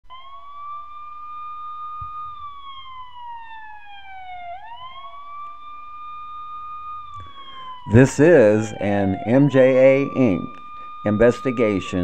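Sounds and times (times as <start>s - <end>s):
siren wailing: 0.0s - 12.0s.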